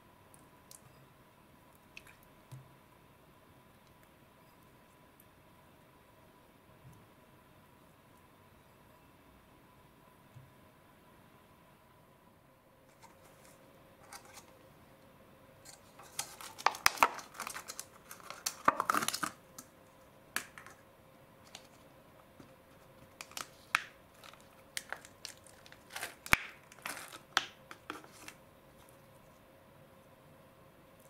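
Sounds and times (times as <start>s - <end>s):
plastic dish crackling: 12.9s - 14.5s, 15.7s - 19.7s, 21.4s - 28.4s.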